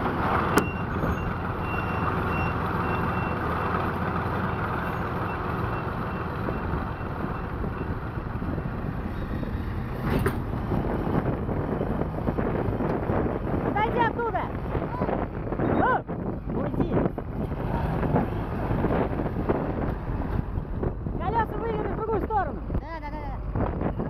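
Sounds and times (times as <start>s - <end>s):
heavy vehicle engines running: 0.0s - 24.0s
reversing alarm beeping: 0.5s - 3.4s, 4.5s - 8.1s.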